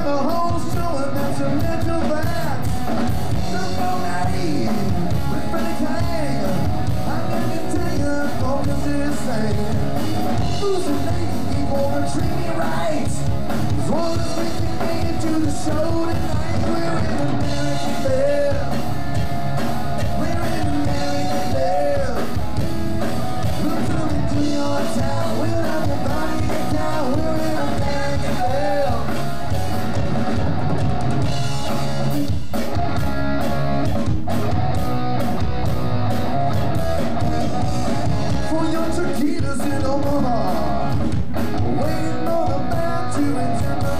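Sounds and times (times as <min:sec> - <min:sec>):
man singing: 0:00.0 - 0:19.0, 0:19.9 - 0:22.7, 0:23.4 - 0:29.4, 0:38.3 - 0:43.9
bass guitar: 0:00.0 - 0:43.9
drum kit: 0:00.0 - 0:43.9
electric guitars: 0:00.0 - 0:43.9.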